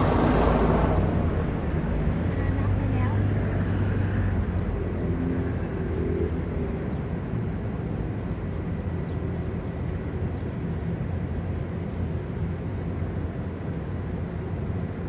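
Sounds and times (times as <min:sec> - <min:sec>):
background rumble: 0:00.0 - 0:11.9
low engine drone: 0:00.0 - 0:15.0.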